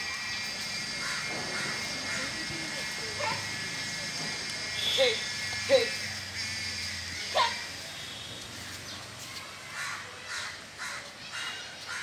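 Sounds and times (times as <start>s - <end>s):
crow cawing: 0.8s - 4.2s, 4.8s - 7.7s, 9.7s - 12.0s.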